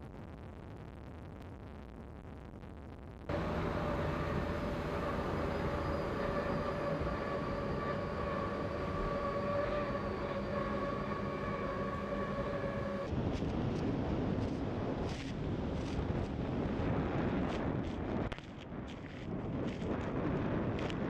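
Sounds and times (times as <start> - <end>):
powerboat engines at high revs: 3.3 - 13.1.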